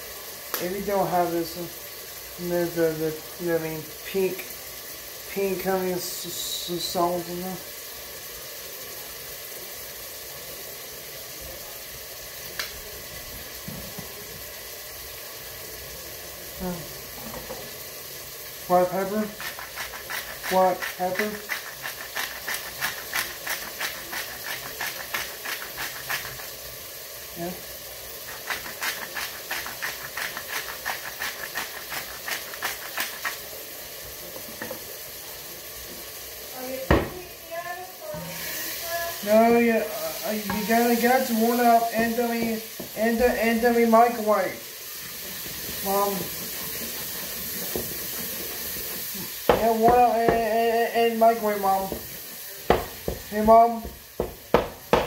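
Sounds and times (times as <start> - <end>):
food sizzling in a pot: 0.0 - 55.0
spice grinder crunching clicks: 19.4 - 26.5.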